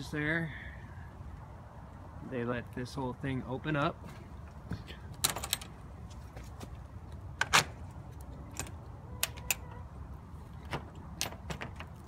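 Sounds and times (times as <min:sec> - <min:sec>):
metal roof clicks and knocks: 0:10.6 - 0:12.0.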